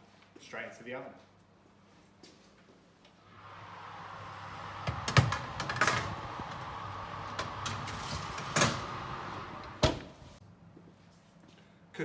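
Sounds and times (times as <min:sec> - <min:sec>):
oven fan whirring: 0:03.2 - 0:10.4
metal tray scraping oven rack: 0:04.5 - 0:09.8.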